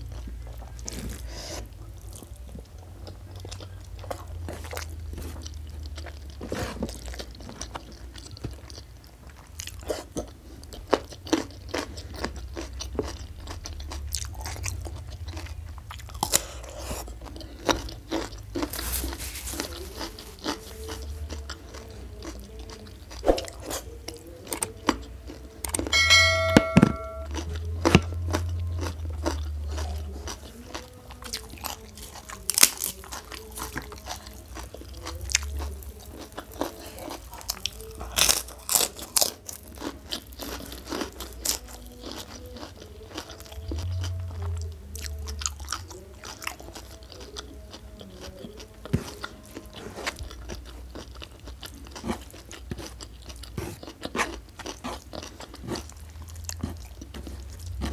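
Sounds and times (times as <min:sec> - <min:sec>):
chewing and lip-smacking: 0:00.0 - 0:26.0, 0:27.3 - 0:57.9
cracker crackling as broken: 0:32.4 - 0:33.1.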